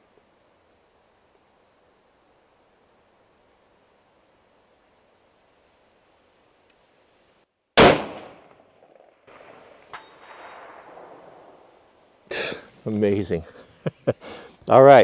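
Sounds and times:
bullet striking steel target: 0:07.8 - 0:11.2
rifle shot: 0:07.8 - 0:11.7.

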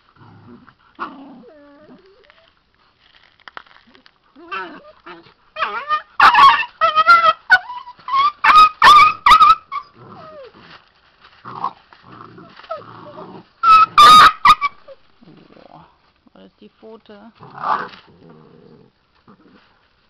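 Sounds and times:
dog growling: 0:00.2 - 0:02.3, 0:11.5 - 0:13.5, 0:15.2 - 0:16.0, 0:17.4 - 0:19.7
puppy yelping and squealing: 0:04.4 - 0:10.6, 0:12.6 - 0:15.0.

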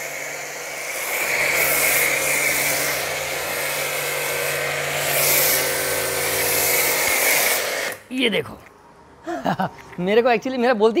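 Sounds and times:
foam spray hissing: 0:00.0 - 0:08.1
pressure washer motor humming: 0:00.0 - 0:08.1.

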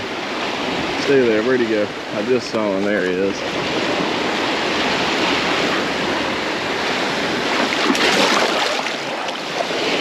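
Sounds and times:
shallow surf washing: 0:00.0 - 0:10.0
water splashing: 0:06.9 - 0:10.0.

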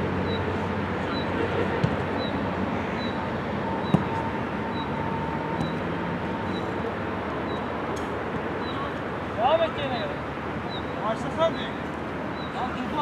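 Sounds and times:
football being kicked: 0:01.8 - 0:02.1, 0:03.8 - 0:04.2.

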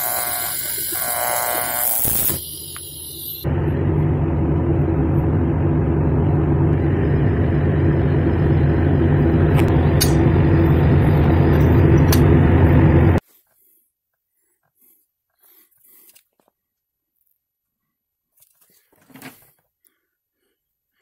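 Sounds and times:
machine droning: 0:00.0 - 0:13.2.

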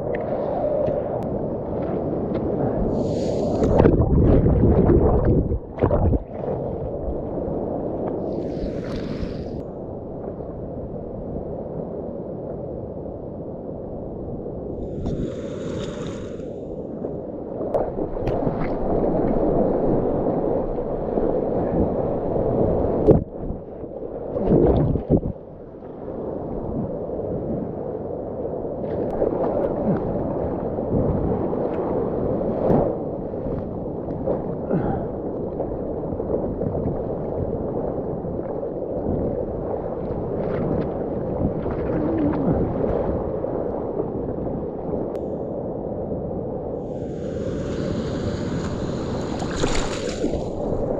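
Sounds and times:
seawater sloshing and rushing: 0:00.0 - 0:09.7, 0:14.8 - 0:16.9, 0:28.8 - 0:44.3, 0:46.8 - 0:50.9
wave splashing over camera: 0:00.0 - 0:09.7, 0:14.8 - 0:25.6, 0:35.6 - 0:44.8, 0:46.8 - 0:50.9.

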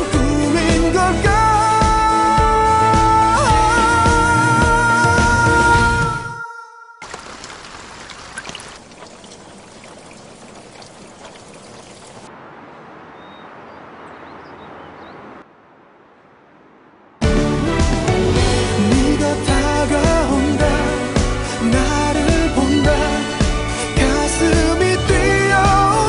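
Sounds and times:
song playing: 0:00.0 - 0:06.8, 0:17.2 - 0:26.0.

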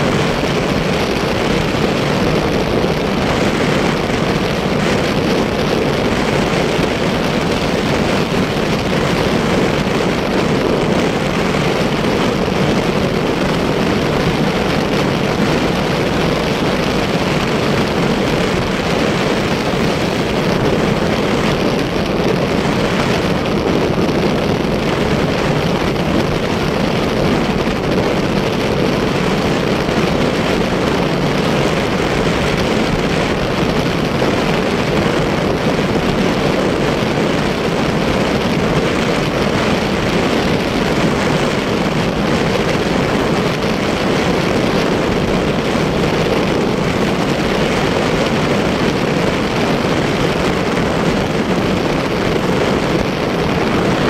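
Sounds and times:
motorcycle engine drone: 0:00.0 - 0:54.0
wind noise: 0:00.0 - 0:54.0.

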